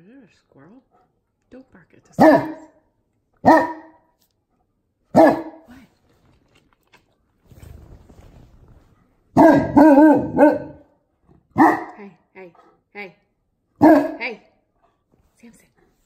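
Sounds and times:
dog barking deeply: 0:02.2 - 0:02.8, 0:03.4 - 0:04.0, 0:05.1 - 0:05.6, 0:09.3 - 0:10.9, 0:11.6 - 0:12.0, 0:13.8 - 0:14.2.

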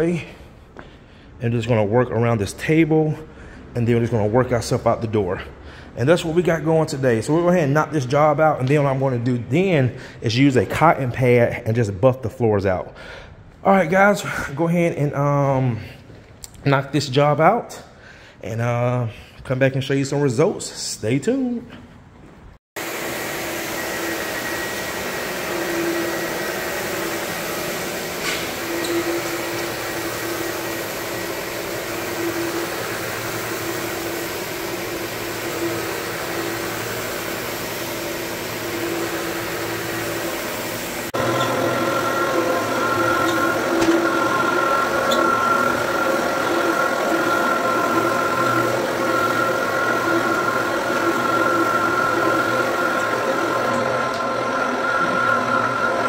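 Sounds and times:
floor buffer whining: 0:22.8 - 0:56.0
floor scrubber humming: 0:22.8 - 0:56.0.

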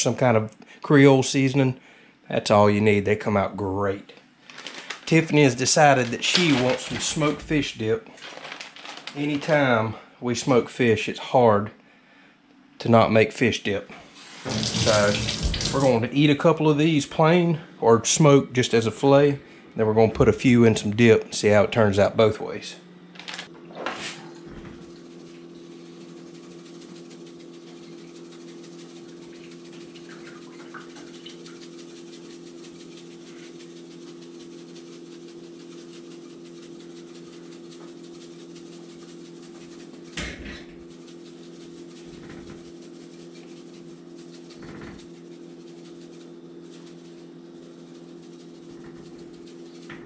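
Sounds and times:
spice shaker rattling: 0:04.4 - 0:07.6, 0:08.2 - 0:09.7, 0:25.0 - 0:50.0
steady machine hum: 0:13.9 - 0:50.0.

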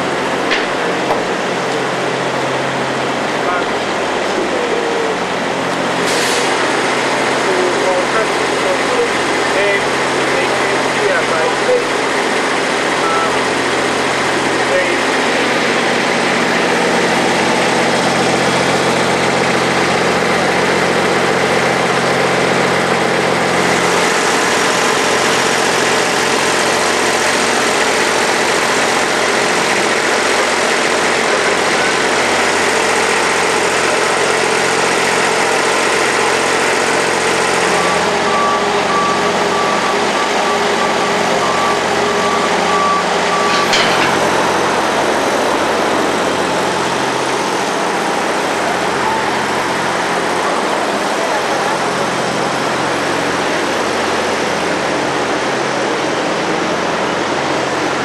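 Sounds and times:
vehicle engines idling: 0:00.0 - 0:58.0
reversing alarm beeps: 0:37.8 - 0:44.3.

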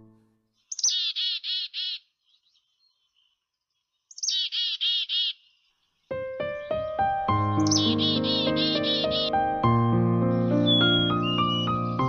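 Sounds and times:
songbird singing: 0:00.0 - 0:09.6, 0:10.2 - 0:12.0
faint bird chips: 0:00.6 - 0:03.3, 0:04.0 - 0:05.6.

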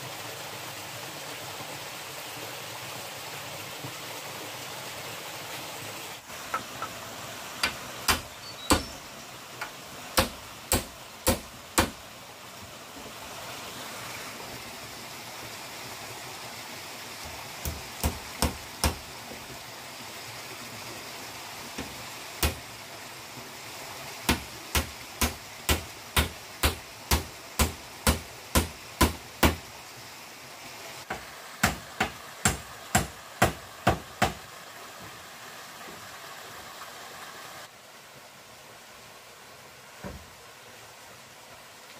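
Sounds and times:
stream rushing: 0:00.0 - 0:41.9
tool striking bamboo: 0:07.6 - 0:09.0, 0:09.6 - 0:12.0, 0:17.6 - 0:19.0, 0:21.8 - 0:22.6, 0:24.3 - 0:29.6, 0:31.1 - 0:34.4.

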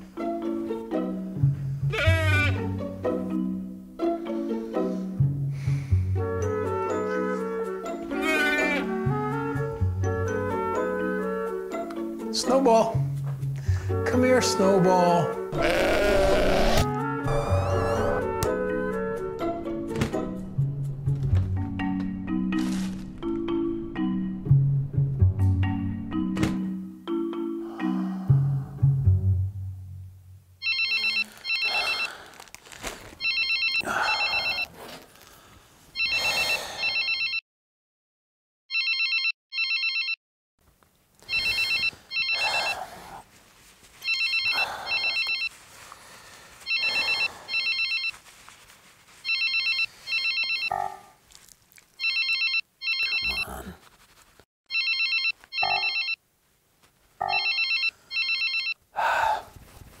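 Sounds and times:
telephone ringing: 0:30.6 - 0:32.1, 0:33.2 - 0:34.7, 0:36.8 - 0:37.4, 0:38.7 - 0:40.2, 0:41.3 - 0:42.4, 0:44.0 - 0:45.5, 0:46.7 - 0:48.2, 0:49.2 - 0:50.7, 0:52.0 - 0:53.4, 0:54.7 - 0:56.2, 0:57.2 - 0:58.8.

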